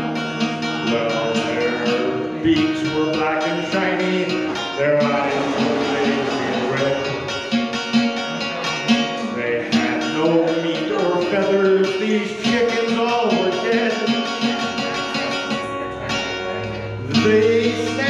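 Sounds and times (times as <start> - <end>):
archtop guitar playing chords: 0.0 - 18.0
man singing: 0.0 - 18.0.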